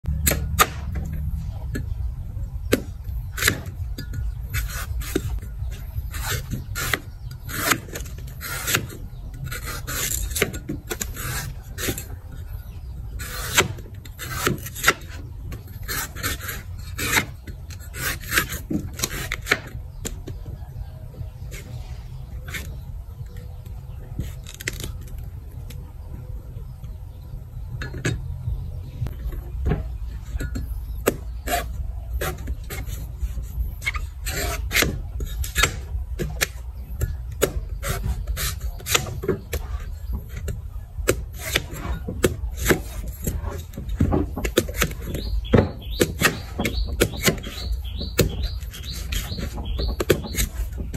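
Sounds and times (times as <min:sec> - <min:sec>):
low rumble: 0:00.0 - 0:06.2, 0:25.0 - 0:32.2
steady low hum: 0:00.0 - 0:50.9
cleaver chopping coconut husk: 0:00.1 - 0:01.9, 0:02.6 - 0:20.6, 0:29.0 - 0:50.9.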